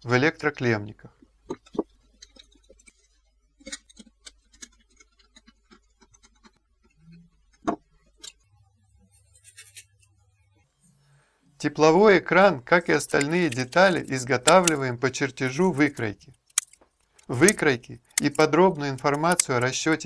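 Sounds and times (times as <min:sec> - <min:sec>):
metal parts clicking and tapping: 0:01.5 - 0:06.6, 0:13.1 - 0:14.8, 0:15.9 - 0:19.8.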